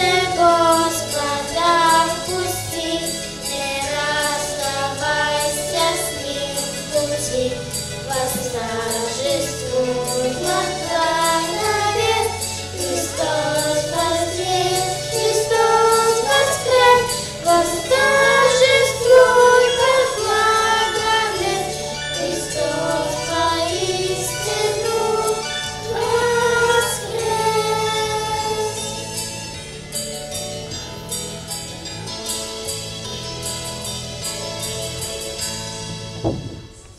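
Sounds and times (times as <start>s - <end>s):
children's choir singing a hymn: 0.0s - 29.4s
instrumental accompaniment with bass: 0.0s - 36.9s.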